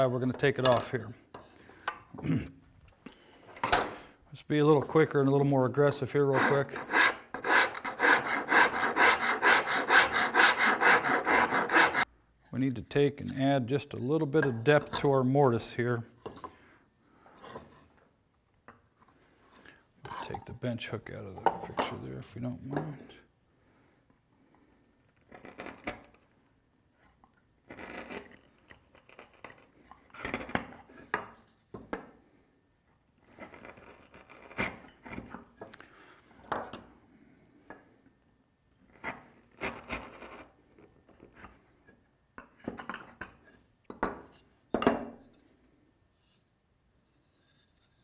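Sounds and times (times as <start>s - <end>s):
chisel scraping wood: 6.0s - 12.1s, 25.0s - 26.3s, 27.7s - 31.1s, 33.2s - 35.4s.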